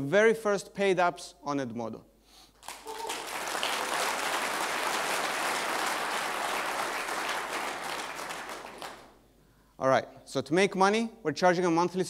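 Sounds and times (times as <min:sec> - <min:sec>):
audience applauding: 0:02.6 - 0:09.2.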